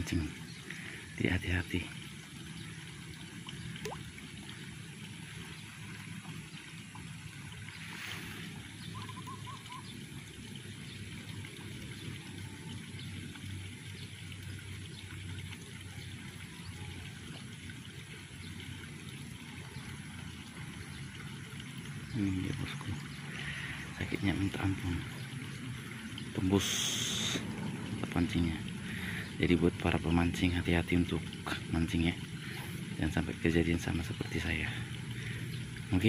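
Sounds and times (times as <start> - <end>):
water trickling: 0.0 - 36.0
low outdoor rumbling: 20.0 - 36.0.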